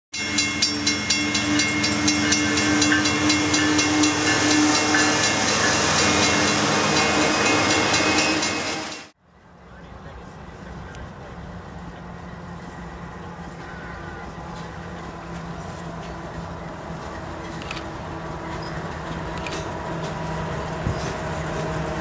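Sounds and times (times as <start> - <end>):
outdoor background: 0.1 - 22.0
freight train rumbling: 0.2 - 22.0
train wheels clicking over rail joints: 14.4 - 22.0.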